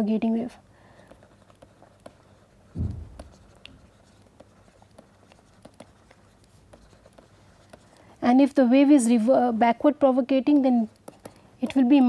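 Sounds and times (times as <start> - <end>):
stylus scratching on tablet: 0.0 - 12.0
low thump: 2.8 - 3.5.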